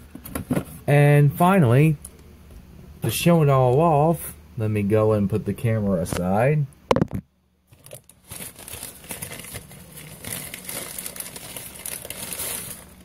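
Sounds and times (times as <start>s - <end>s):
crinkly packaging crackling: 7.7s - 13.0s.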